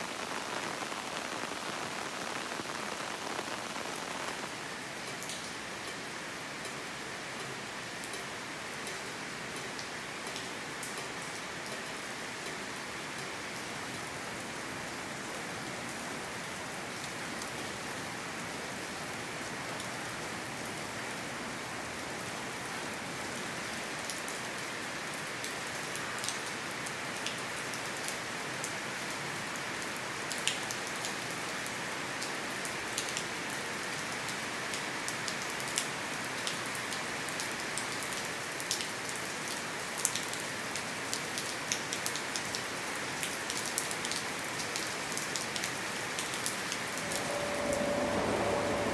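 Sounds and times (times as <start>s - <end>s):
rain on a metal roof: 0.0s - 48.9s.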